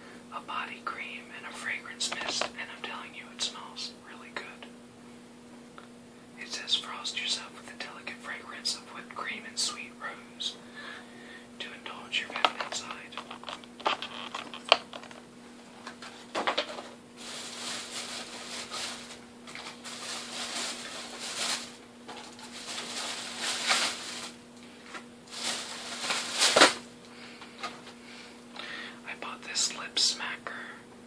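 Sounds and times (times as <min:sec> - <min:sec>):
rummaging and rustling: 0:16.0 - 0:26.8.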